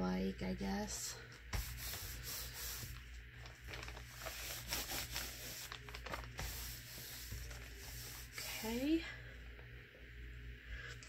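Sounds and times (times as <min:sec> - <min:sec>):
paper rustling and sliding: 0:01.6 - 0:08.5.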